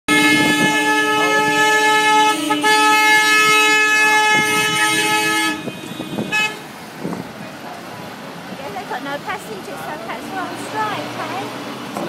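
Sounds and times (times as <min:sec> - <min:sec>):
car horn blast: 0:00.1 - 0:06.7.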